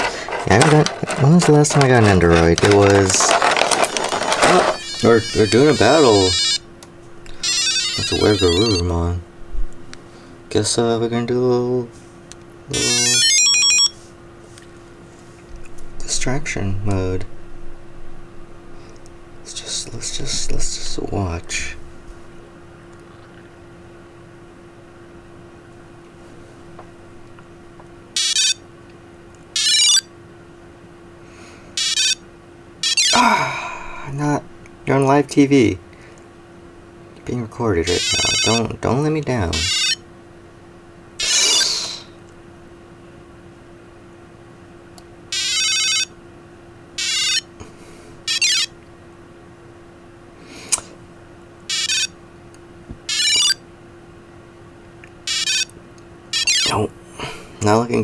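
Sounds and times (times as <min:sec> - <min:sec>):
electronic toy battle beeps: 0:04.8 - 0:06.6, 0:07.4 - 0:08.8, 0:12.7 - 0:13.9, 0:28.2 - 0:28.6, 0:29.6 - 0:30.1, 0:31.8 - 0:32.2, 0:32.8 - 0:33.2, 0:38.0 - 0:38.6, 0:39.6 - 0:40.0, 0:41.2 - 0:41.7, 0:45.4 - 0:46.1, 0:47.0 - 0:47.4, 0:48.3 - 0:48.7, 0:51.7 - 0:52.1, 0:53.1 - 0:53.6, 0:55.3 - 0:55.7, 0:56.4 - 0:56.7
electronic beeps: 0:07.5 - 0:08.8, 0:12.7 - 0:14.0, 0:29.6 - 0:30.0, 0:31.8 - 0:32.2, 0:48.3 - 0:48.7, 0:51.7 - 0:52.1, 0:53.1 - 0:53.6, 0:55.3 - 0:55.7, 0:56.4 - 0:56.7.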